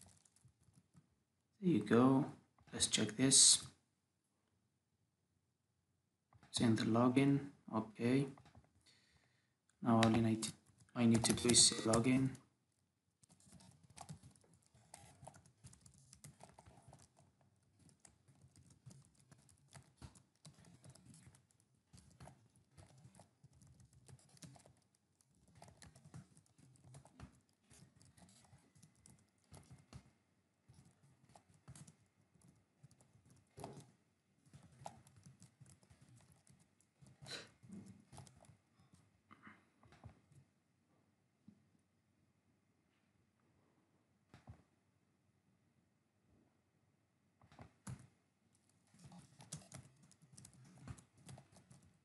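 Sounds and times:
faint keyboard typing: 0.0s - 1.1s, 9.9s - 12.5s, 13.2s - 39.1s, 47.4s - 52.0s.

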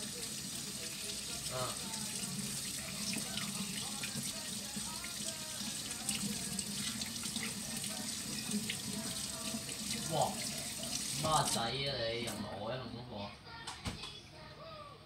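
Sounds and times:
tap water running into sink: 0.0s - 11.6s.

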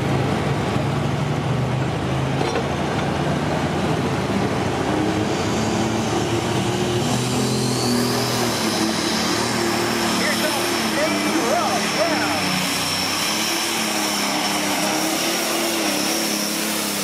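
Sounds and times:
diesel engine under load: 0.0s - 17.0s
turbo whine: 5.1s - 17.0s.

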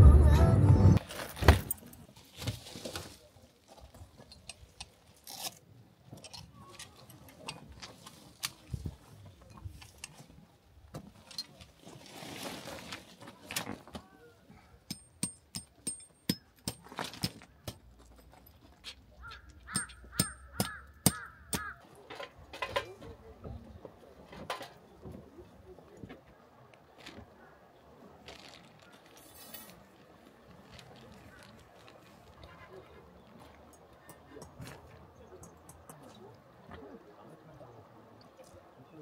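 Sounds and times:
camping gear knocks and rustles: 1.0s - 5.1s, 15.0s - 20.0s, 22.0s - 25.4s, 28.2s - 32.6s.

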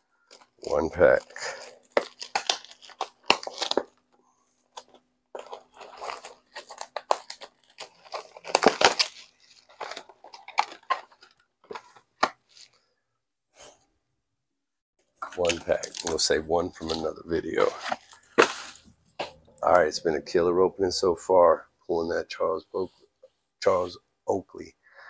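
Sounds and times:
wrapper tearing and crinkling: 0.3s - 12.7s, 15.2s - 18.9s.

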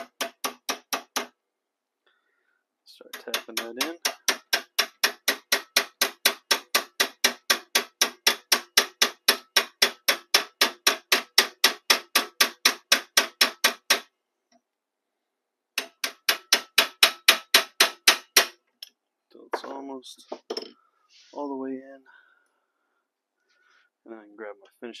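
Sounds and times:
hammer tapping steel punch: 0.0s - 1.3s, 3.0s - 14.1s, 15.8s - 18.6s.

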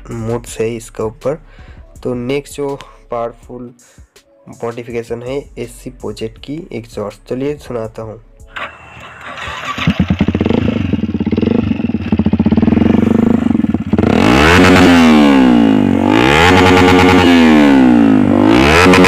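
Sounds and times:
motorcycle engine revving: 8.5s - 19.0s.

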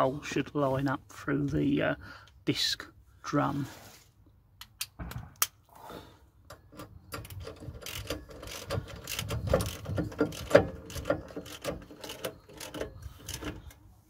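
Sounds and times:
socket ratchet clicking: 6.6s - 13.6s.

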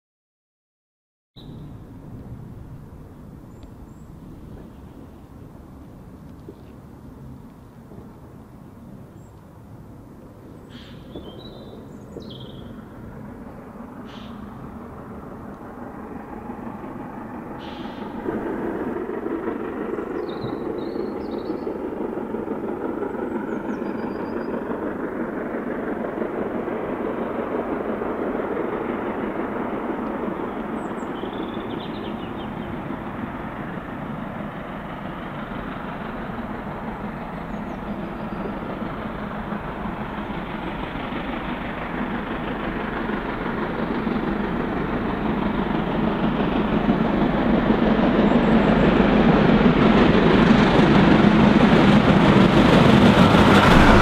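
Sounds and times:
faint bird chirps: 10.5s - 12.8s
steam locomotive exhaust: 10.7s - 50.6s, 51.2s - 54.0s.

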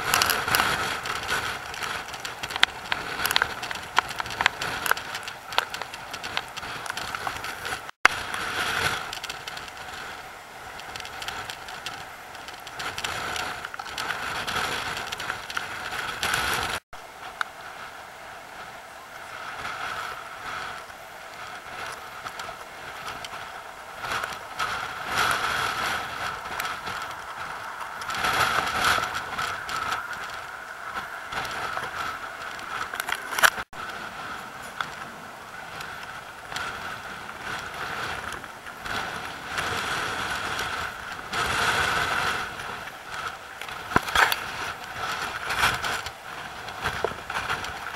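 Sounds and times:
surf breaking on rocks: 18.6s - 47.9s.

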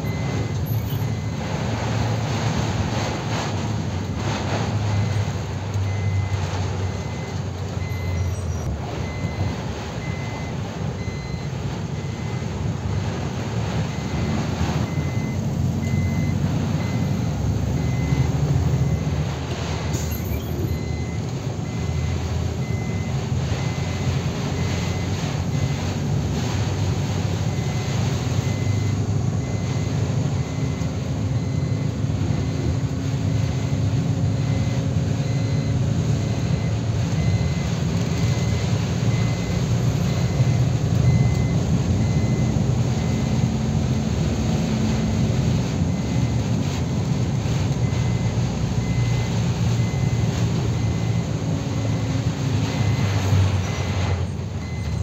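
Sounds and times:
truck engine running: 0.0s - 55.0s
tyres hissing on wet road: 0.2s - 55.0s
faint high beep: 20.0s - 23.8s.

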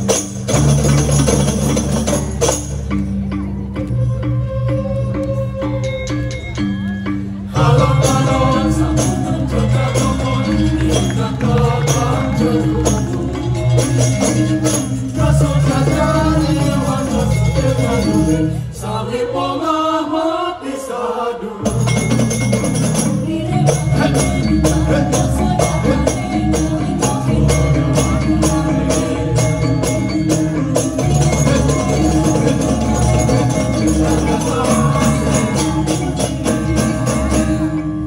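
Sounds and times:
gamelan playing fast: 0.0s - 19.7s, 21.6s - 38.0s
women singing in chorus: 7.5s - 21.8s, 23.0s - 37.7s.

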